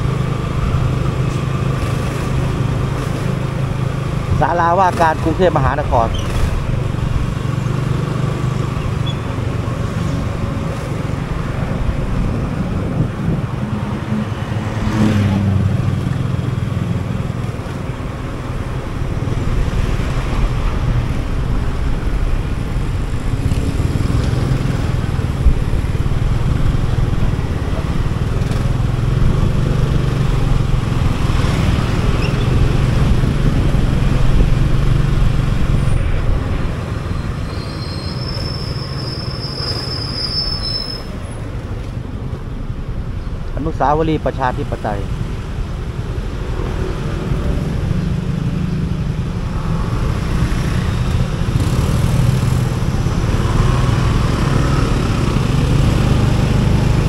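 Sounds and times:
wind and road noise: 0:00.0 - 0:57.0
motor scooter engine hum: 0:06.1 - 0:37.4, 0:44.7 - 0:57.0.

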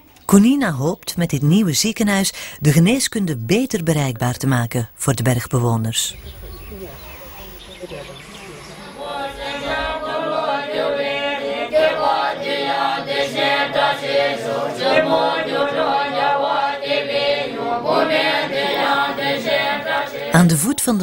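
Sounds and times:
voices singing chant: 0:05.3 - 0:21.0.

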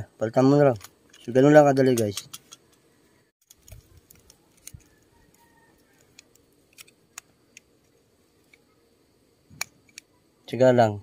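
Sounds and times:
small metal cap clicks: 0:00.7 - 0:02.8.

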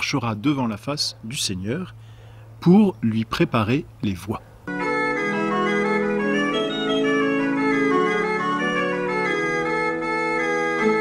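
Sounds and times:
organ playing slow chords: 0:04.7 - 0:11.0.

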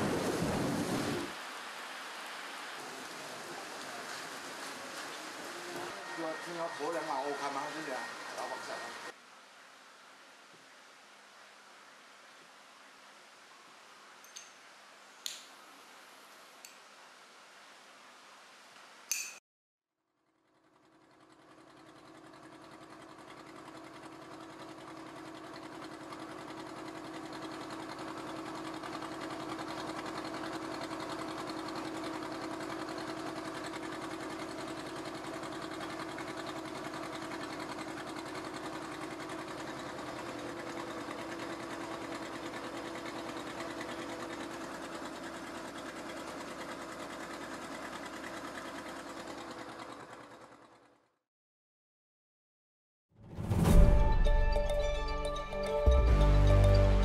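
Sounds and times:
fast-chattering mechanical drone: 0:20.2 - 0:51.0.

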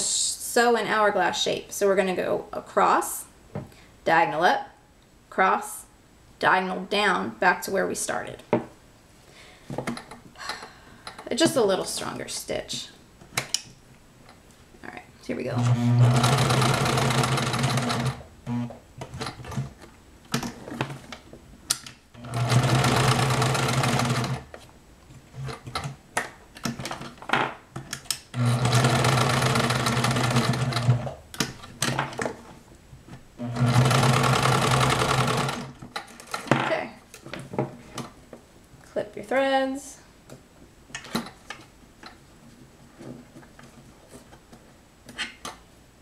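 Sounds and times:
sewing machine stitching: 0:15.6 - 0:19.7, 0:22.2 - 0:24.5, 0:28.3 - 0:31.2, 0:33.4 - 0:36.4.

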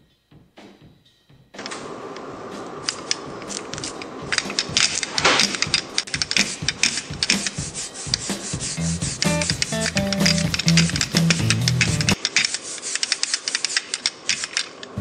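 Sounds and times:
brayer rolling sticky ink: 0:02.8 - 0:14.7.

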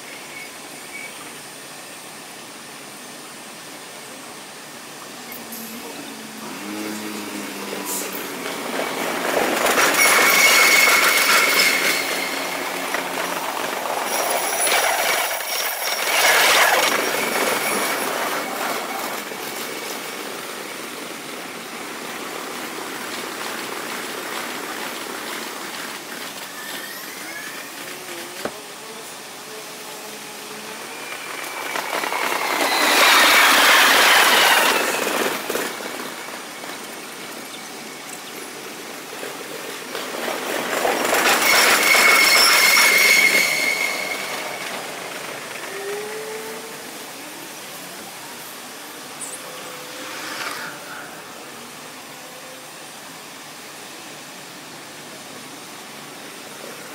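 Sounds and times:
train wheels on rails: 0:00.0 - 0:56.9
thin high squeal: 0:09.8 - 0:13.0, 0:26.4 - 0:28.4, 0:30.9 - 0:35.2, 0:41.2 - 0:44.9.

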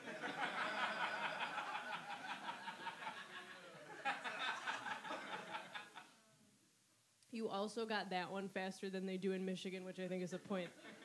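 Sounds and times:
audience laughing: 0:00.0 - 0:06.1.

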